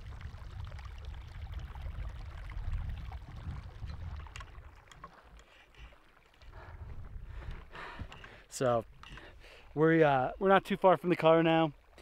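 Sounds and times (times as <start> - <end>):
wind buffeting microphone: 0.0 - 5.0, 6.4 - 8.3
mountain stream trickling: 0.0 - 12.0.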